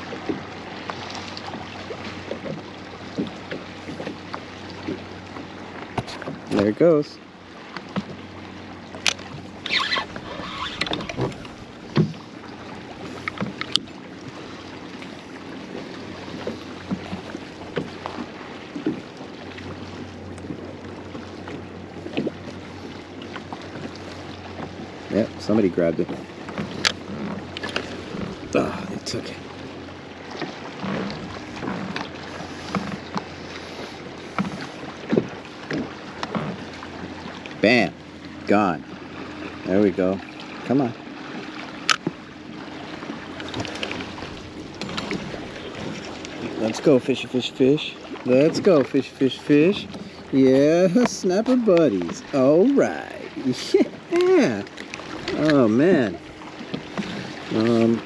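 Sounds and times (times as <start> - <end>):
short knocks and gurgles: 0.0 - 7.0, 8.9 - 14.4, 15.0 - 22.6, 23.2 - 29.6, 30.2 - 58.0
water lapping against hull: 0.0 - 58.0
wind on microphone: 9.4 - 12.3.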